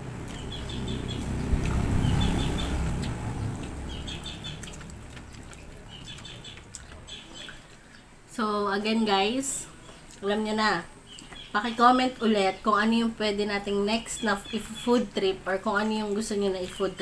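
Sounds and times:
passing vehicle rumble: 0.0s - 6.7s
small birds chirping: 0.0s - 8.2s, 8.9s - 17.0s
faint eating clicks: 3.0s - 8.1s, 11.1s - 11.5s, 14.8s - 17.0s.

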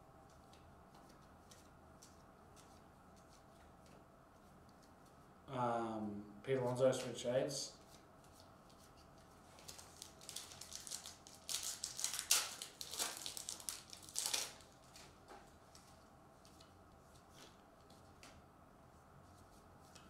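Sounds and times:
plastic wrapper crinkling: 9.5s - 15.9s.

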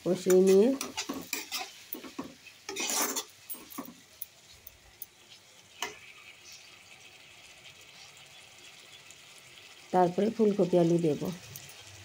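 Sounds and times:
faint oil sizzle: 0.0s - 12.0s
metal spatula scraping a pan: 0.2s - 4.0s.

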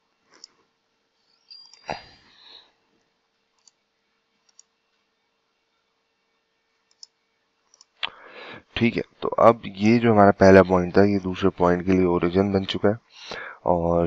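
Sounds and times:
faint steady hum: 0.0s - 14.0s
computer mouse clicks: 3.5s - 3.8s, 4.4s - 5.0s, 6.8s - 8.2s.

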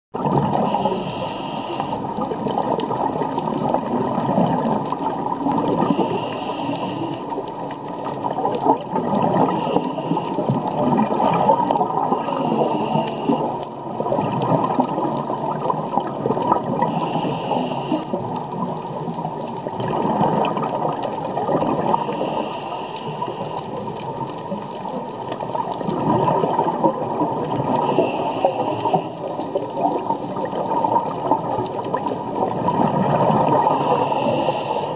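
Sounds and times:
underwater churning rumble: 0.2s - 34.9s
scuba regulator breath hissing: 0.5s - 2.1s, 5.8s - 7.4s, 9.4s - 10.7s, 12.1s - 13.6s, 16.9s - 18.2s, 21.9s - 23.8s, 27.8s - 29.4s, 33.5s - 34.9s.

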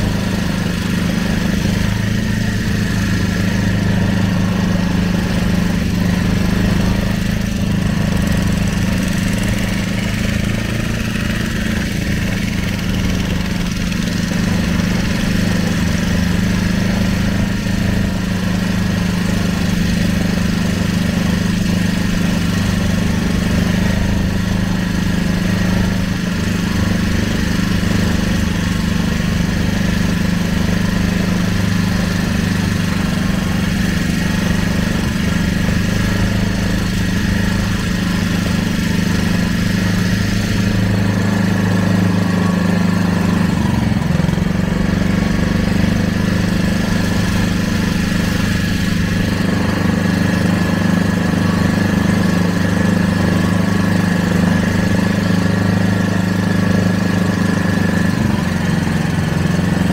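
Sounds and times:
boat motor humming: 0.0s - 59.9s.

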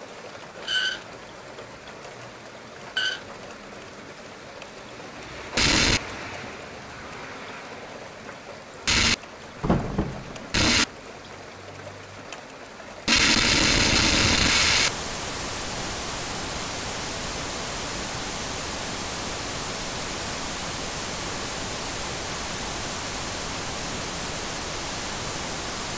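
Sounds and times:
static hiss: 5.5s - 6.1s, 8.8s - 10.9s, 13.1s - 25.9s.

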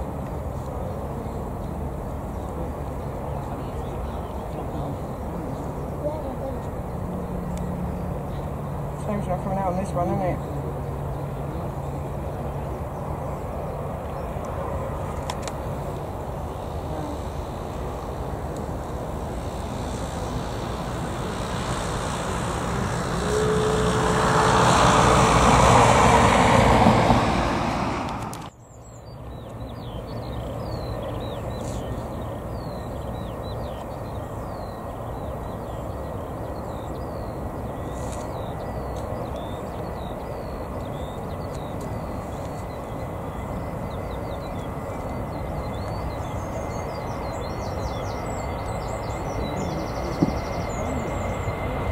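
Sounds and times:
jet engines at take-off: 0.0s - 51.9s
steady rumble: 1.8s - 28.5s
birds chirping: 28.5s - 51.9s.

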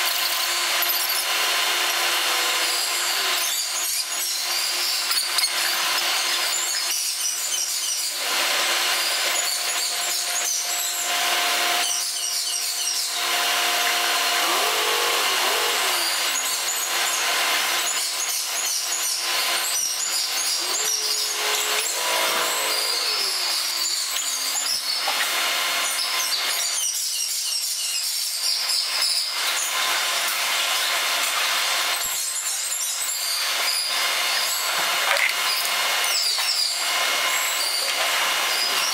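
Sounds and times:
brief wavering tones: 20.6s - 24.7s.

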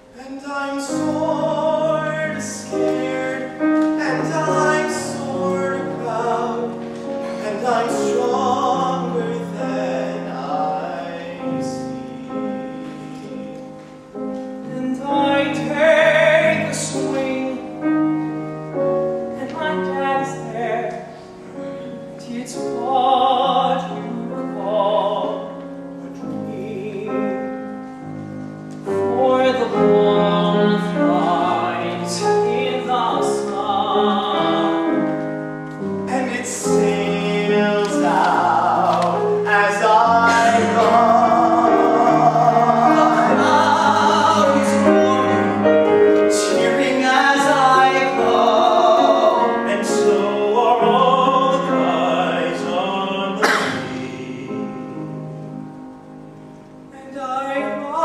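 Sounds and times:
piano accompaniment: 0.0s - 58.0s
male voices singing together: 0.2s - 13.5s, 36.1s - 54.9s.

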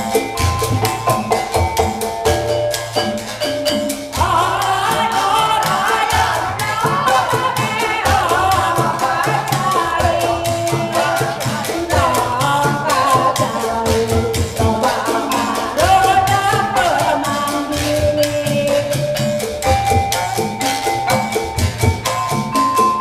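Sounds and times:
bamboo percussion clicking: 0.0s - 23.0s
woman singing into microphone: 4.2s - 19.5s.

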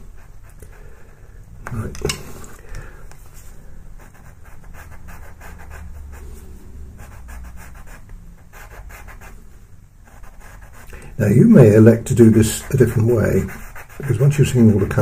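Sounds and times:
steady low hum: 0.0s - 15.0s
pastel pencil scratching paper: 3.4s - 6.4s, 7.0s - 9.4s, 10.0s - 11.0s, 11.6s - 15.0s.

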